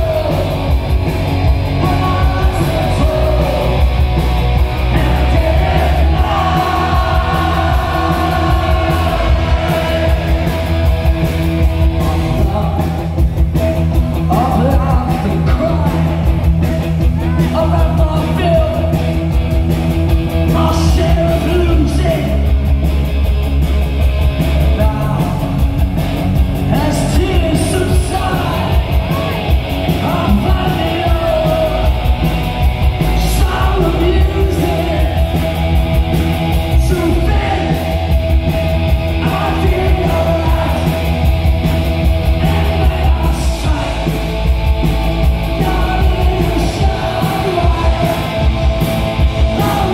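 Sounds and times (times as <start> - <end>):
bass guitar: 0.0 - 49.9
drums: 0.0 - 49.9
electric guitars: 0.0 - 49.9
man singing into a microphone: 1.8 - 3.8, 14.2 - 16.2, 20.5 - 22.4, 26.7 - 29.4, 30.0 - 31.9, 33.2 - 35.2, 36.8 - 37.9, 39.2 - 41.0, 42.4 - 44.2, 45.6 - 48.3, 49.5 - 49.9.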